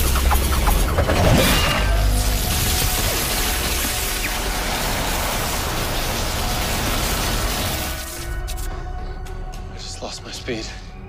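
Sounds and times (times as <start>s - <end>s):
crash sound effect: 0.0s - 7.4s.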